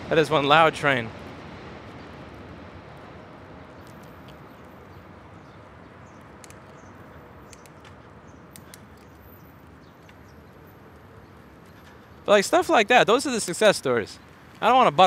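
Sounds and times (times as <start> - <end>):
train rumbling past: 0.0 - 6.2
faint clicks: 3.7 - 12.1.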